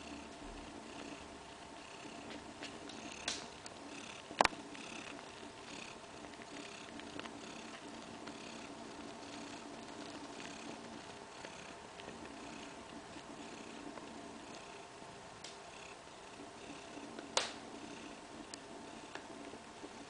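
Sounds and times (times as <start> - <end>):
cat purring: 0.0 - 20.0.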